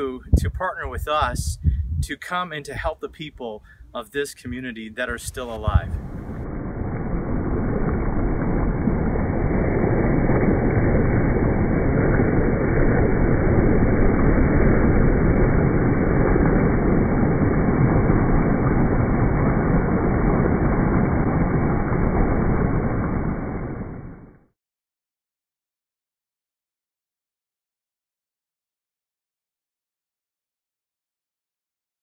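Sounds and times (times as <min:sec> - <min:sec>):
wind rushing: 0:00.2 - 0:02.0, 0:05.1 - 0:24.4
choppy water: 0:05.0 - 0:24.5.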